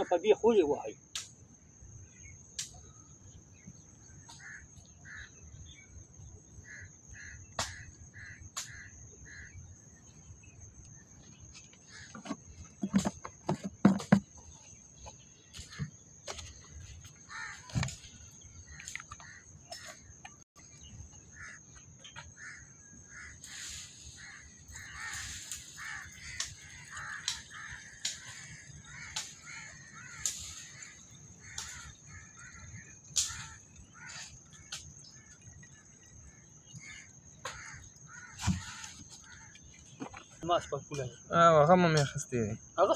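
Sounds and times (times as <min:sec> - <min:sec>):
high insect drone: 0:00.0 - 0:42.9
crows cawing: 0:04.2 - 0:05.7, 0:06.6 - 0:09.6, 0:17.2 - 0:20.2, 0:21.3 - 0:39.7.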